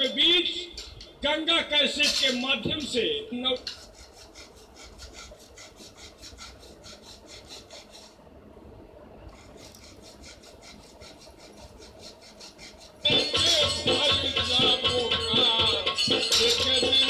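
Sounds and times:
quiet rasping strokes: 3.5s - 8.3s, 9.3s - 17.0s
loud music with rattling percussion: 13.0s - 17.0s.

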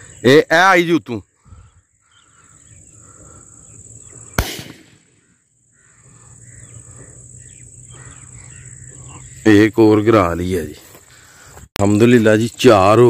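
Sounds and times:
insect chirring: 0.0s - 9.9s
bird calls: 0.0s - 12.0s
shotgun shot with echo: 4.4s - 5.1s.

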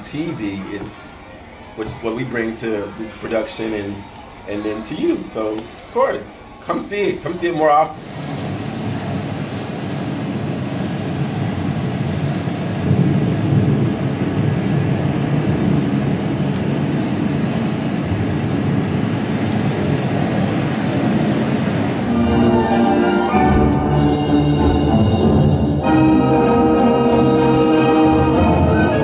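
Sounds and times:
loud rumbling drone: 8.1s - 28.6s.

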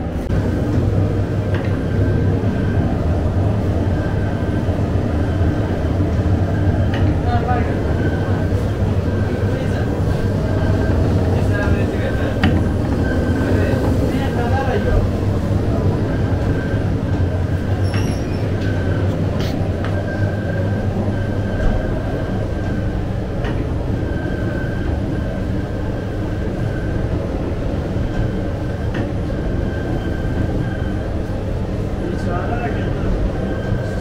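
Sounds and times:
dough machinery drone: 0.0s - 34.0s.

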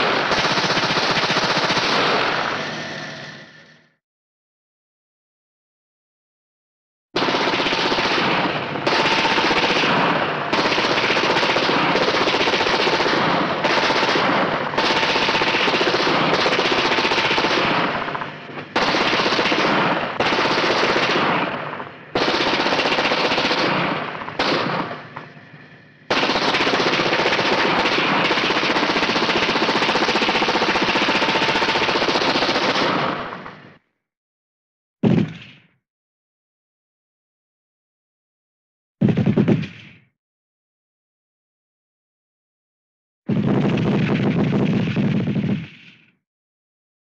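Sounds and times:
machine gun bursts: 7.2s - 25.2s, 26.1s - 33.4s.

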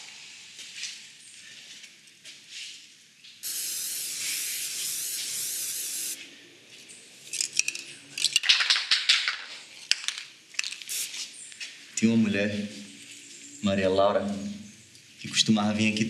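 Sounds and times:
spray can hissing: 3.4s - 6.2s, 10.6s - 11.3s.

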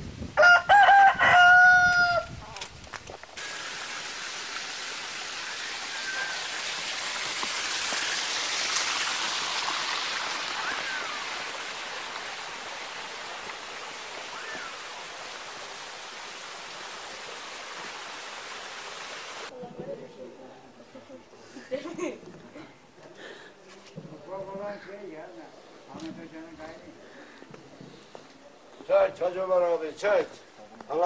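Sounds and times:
running water rushing: 3.3s - 19.5s.

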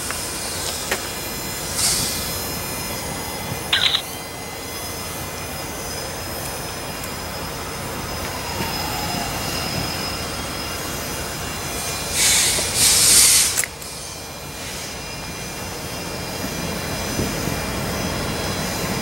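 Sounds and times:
freight train rumble: 0.0s - 19.0s
loud hissing bursts: 0.2s - 6.1s, 11.8s - 14.9s.

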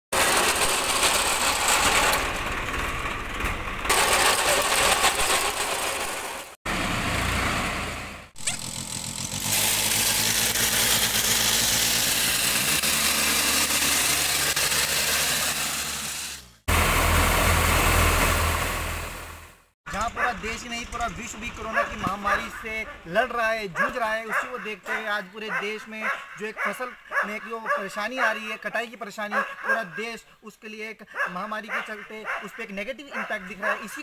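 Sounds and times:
reaper working: 0.1s - 23.9s
tractor engine running: 0.1s - 23.9s.

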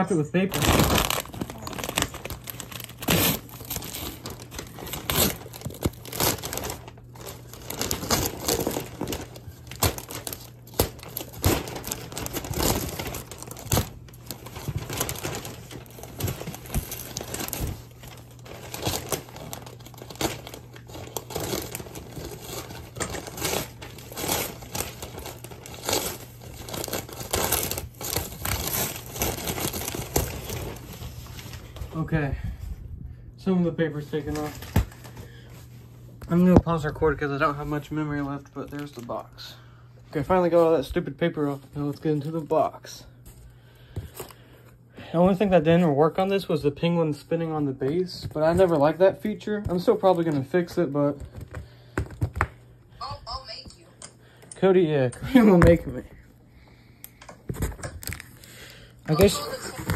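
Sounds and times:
wrapping paper tearing and crumpling: 0.0s - 31.9s, 57.6s - 59.9s.

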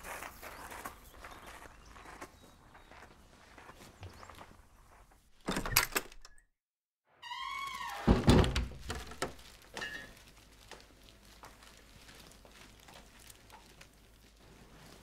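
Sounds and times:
door hinge squealing: 7.2s - 8.6s
door shutting with thunk: 8.0s - 9.3s.

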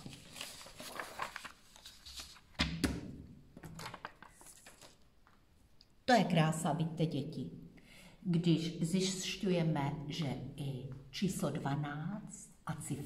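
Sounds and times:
paper shuffling on wooden table: 0.0s - 2.6s, 3.6s - 5.0s.

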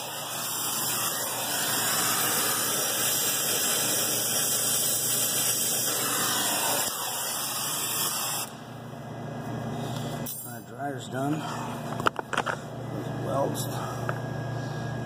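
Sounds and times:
torch flame hissing: 0.0s - 8.7s.

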